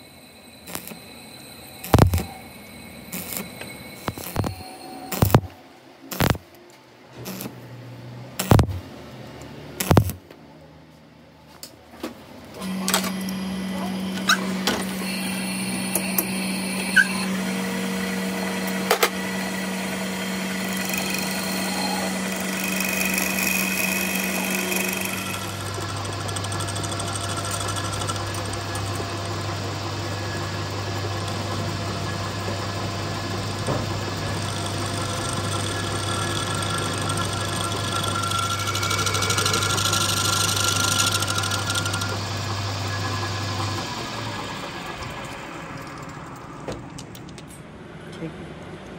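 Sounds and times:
metal lathe humming: 0.0s - 6.4s, 7.2s - 7.5s, 8.4s - 8.7s, 12.6s - 46.5s
sharp clicks: 0.7s - 1.0s, 1.8s - 2.3s, 3.1s - 5.5s, 6.1s - 6.5s, 7.2s - 7.5s, 8.4s - 8.7s, 9.8s - 10.2s.

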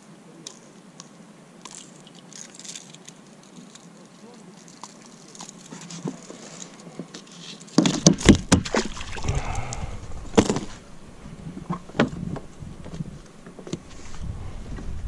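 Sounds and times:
knocks in an inflatable boat: 7.8s - 8.9s
low steady rumble: 8.3s - 15.0s.

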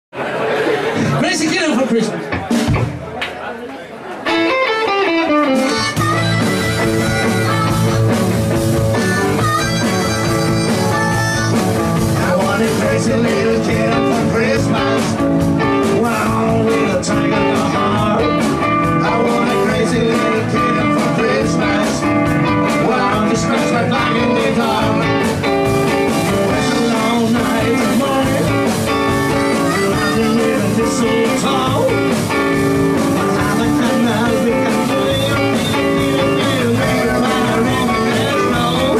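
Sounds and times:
blues-rock band playing: 0.8s - 38.9s
blues harmonica: 4.3s - 12.0s, 25.1s - 38.9s.

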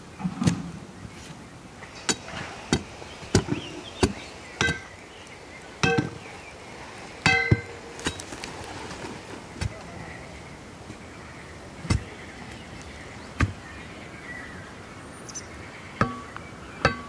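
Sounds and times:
metal pipe and rod clanking: 5.8s - 6.2s, 7.2s - 7.8s.

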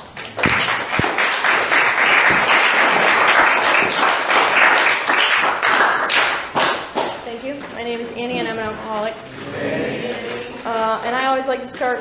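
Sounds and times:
audience applauding: 0.3s - 7.2s.

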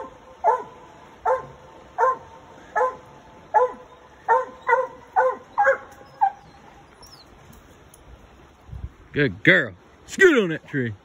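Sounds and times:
dog barking: 0.4s - 6.4s.

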